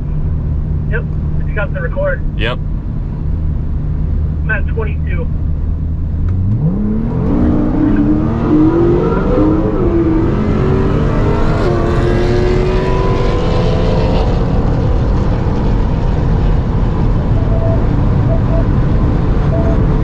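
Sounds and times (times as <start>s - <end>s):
road and wind noise: 0.0s - 20.0s
car engine revving at full throttle: 4.8s - 20.0s.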